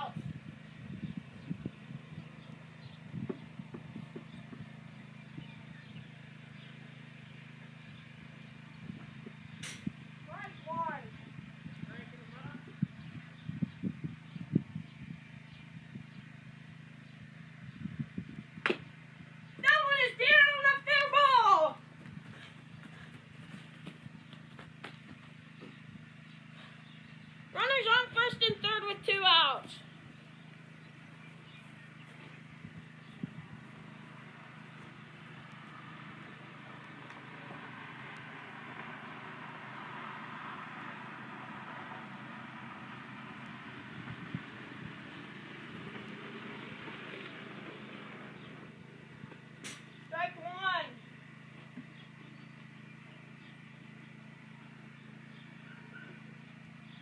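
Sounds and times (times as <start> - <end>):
car driving on gravel: 21.8 - 27.5, 29.3 - 50.2.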